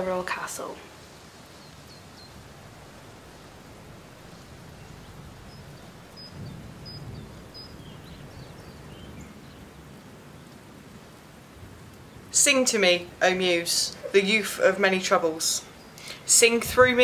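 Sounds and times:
low rumble of wind: 0.0 - 17.0
bird calls: 3.2 - 10.5.

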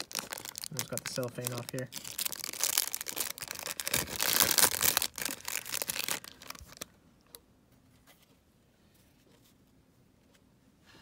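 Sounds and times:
cellophane wrapper crinkling: 0.0 - 7.0.

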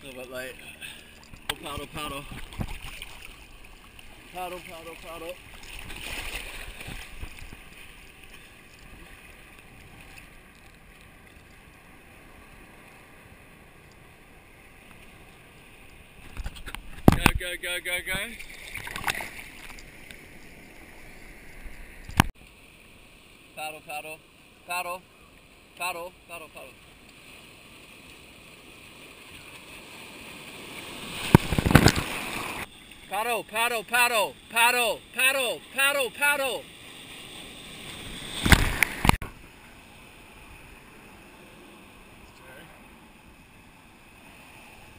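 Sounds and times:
whitewater splashing against camera: 0.0 - 11.6, 29.2 - 33.1, 37.0 - 39.4
sea water lapping and sloshing: 0.0 - 17.2, 18.1 - 33.2, 34.4 - 44.9
ocean wave rushing: 28.4 - 44.9.

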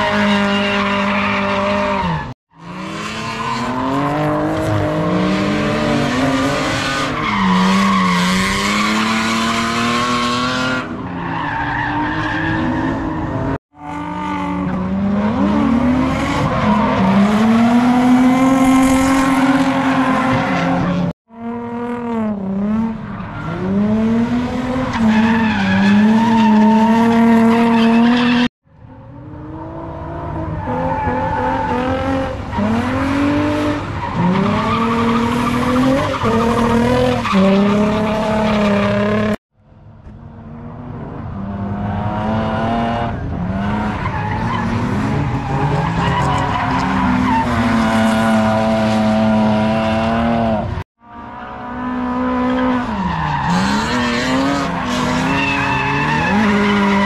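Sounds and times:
car engines at high revs: 40.4 - 57.0.

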